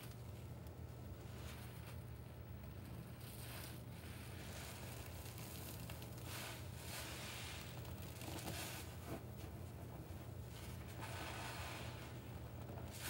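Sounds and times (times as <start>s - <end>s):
faint low hum: 0.0s - 13.0s
wet sponge squelching: 3.4s - 9.1s.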